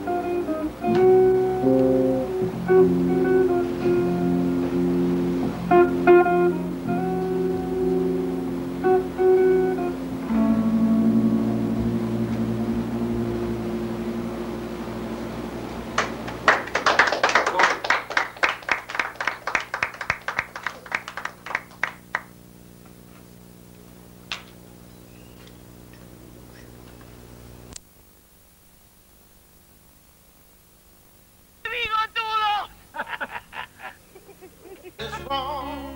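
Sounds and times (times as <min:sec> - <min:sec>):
electric bass low note: 0:00.0 - 0:16.4
electric guitar ringing: 0:00.0 - 0:16.8, 0:35.0 - 0:35.9
audience clapping: 0:15.9 - 0:22.4.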